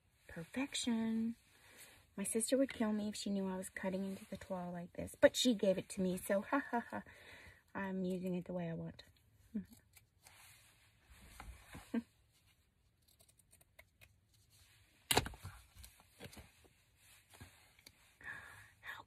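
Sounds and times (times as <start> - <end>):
rustling of fabric and paper: 10.1 - 18.2.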